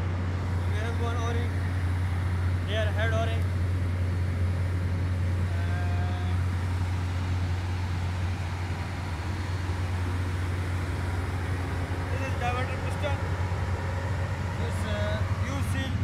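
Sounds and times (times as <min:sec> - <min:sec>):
heavy machinery droning: 0:00.0 - 0:16.0.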